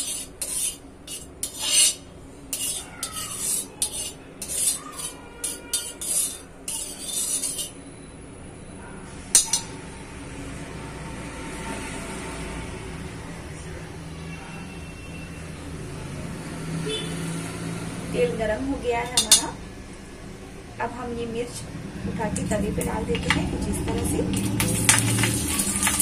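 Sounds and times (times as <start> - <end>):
spatula scraping iron pan: 0.0 - 7.8, 9.3 - 9.7, 19.0 - 19.5.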